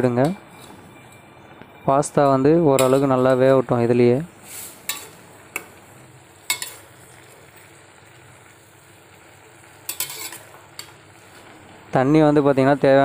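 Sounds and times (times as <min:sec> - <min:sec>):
metal spatula clinking pot: 0:02.7 - 0:03.2, 0:06.5 - 0:06.8, 0:09.9 - 0:10.9
pasta boiling and bubbling: 0:02.8 - 0:13.0.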